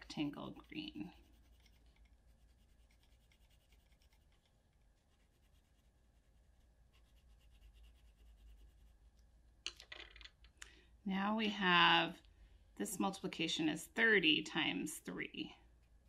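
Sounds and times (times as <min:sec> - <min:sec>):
pencil scratching on paper: 0:00.0 - 0:09.1.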